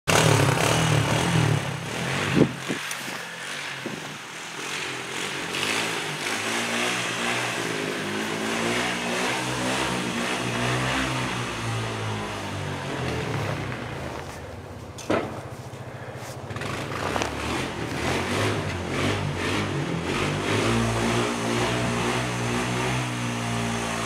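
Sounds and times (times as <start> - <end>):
atv engine running: 0.1 - 24.0.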